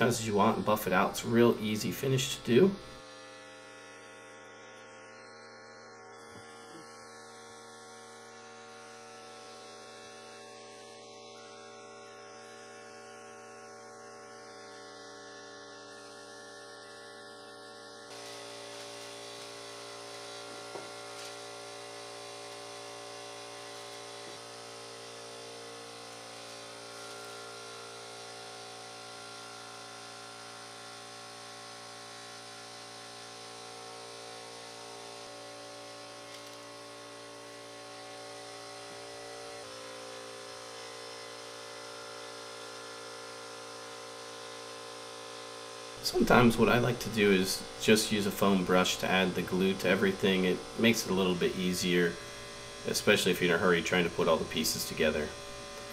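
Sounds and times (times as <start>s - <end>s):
electrical hum: 0.0s - 29.9s, 45.9s - 55.9s.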